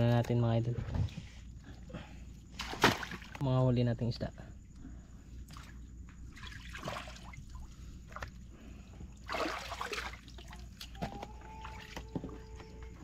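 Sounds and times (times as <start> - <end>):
water splash: 2.6 - 3.4, 9.3 - 10.4
seawater sloshing around feet: 9.2 - 11.0.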